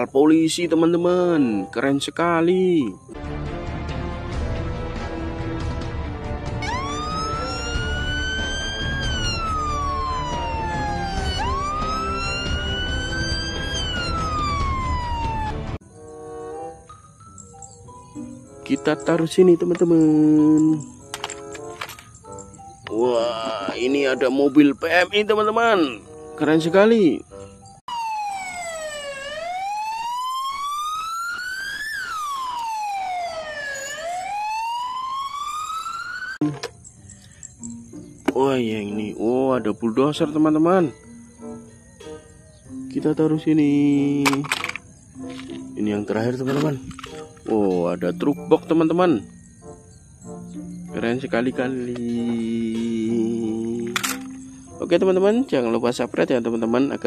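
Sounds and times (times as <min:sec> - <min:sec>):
police siren wailing: 0:06.4 - 0:15.8, 0:27.9 - 0:36.5.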